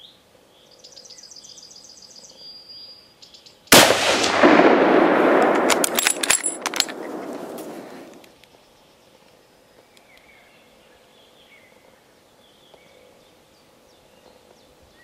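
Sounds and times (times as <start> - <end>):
rifle shot crack: 3.7 - 8.3
rolling echo: 3.7 - 8.3
sharp clicks: 3.8 - 8.4.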